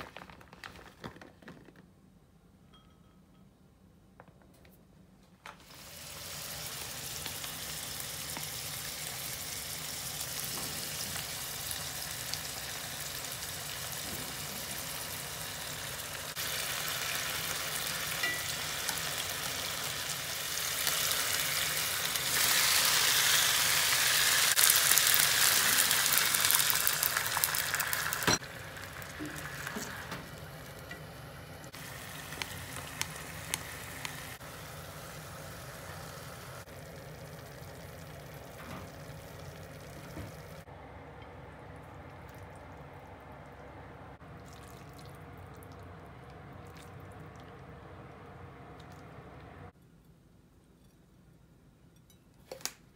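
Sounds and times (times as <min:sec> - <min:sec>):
meat sizzling in a pan: 0:05.7 - 0:30.8, 0:31.7 - 0:40.2.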